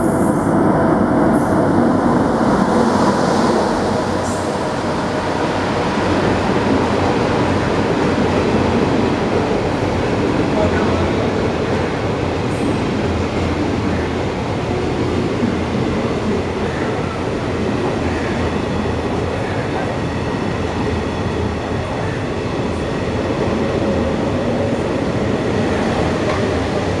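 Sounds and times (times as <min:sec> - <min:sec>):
train wheels rumbling on rail: 0:00.0 - 0:27.0.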